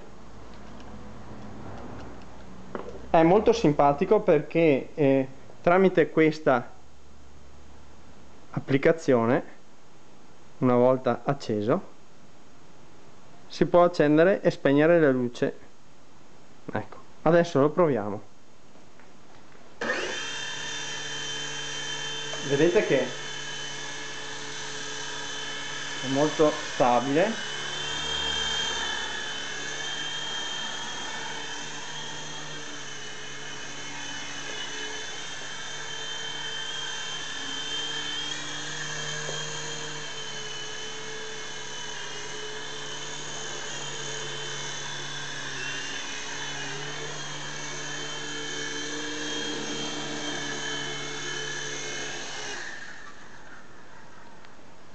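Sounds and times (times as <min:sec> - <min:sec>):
toy helicopter motor whine: 0:19.8 - 0:54.0.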